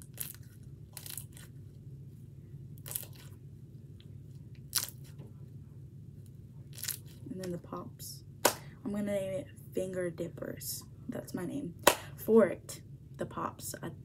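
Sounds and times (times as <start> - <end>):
crunchy slime crackling and popping: 0.0 - 1.6, 2.8 - 3.3, 4.6 - 5.1, 6.7 - 7.2.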